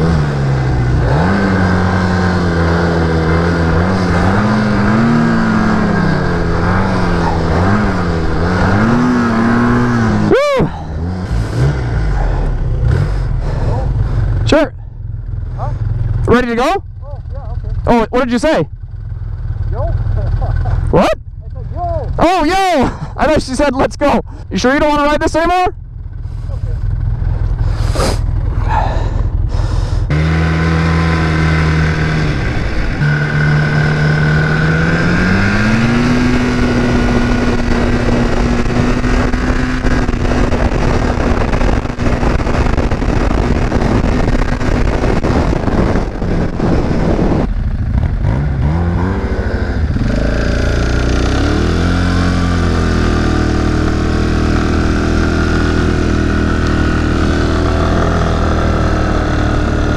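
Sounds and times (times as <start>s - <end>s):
atv engine accelerating: 0.0s - 59.9s
wind noise on microphone: 31.1s - 50.8s.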